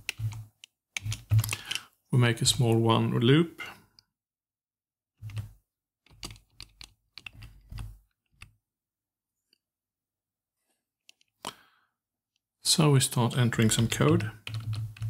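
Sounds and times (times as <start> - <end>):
keyboard typing: 0.0 - 1.9, 5.2 - 8.5, 13.5 - 15.0.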